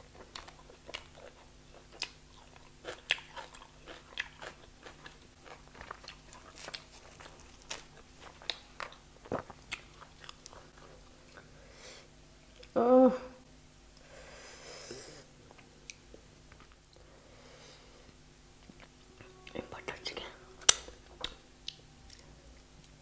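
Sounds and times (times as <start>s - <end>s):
chewing: 0.1s - 11.5s.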